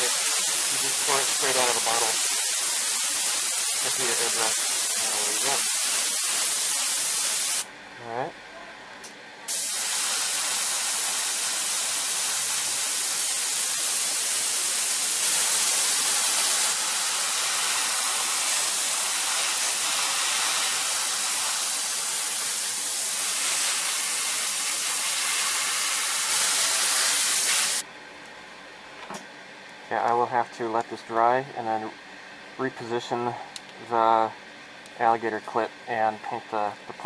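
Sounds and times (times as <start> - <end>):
airbrush hissing: 0.0 - 7.7, 9.5 - 27.8.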